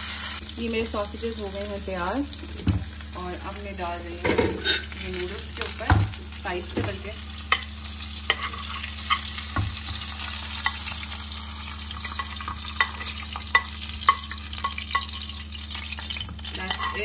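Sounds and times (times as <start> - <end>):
noodles sizzling in a frying pan: 0.0 - 17.0
metal spoon clinking on pan: 8.3 - 9.4, 12.0 - 17.0.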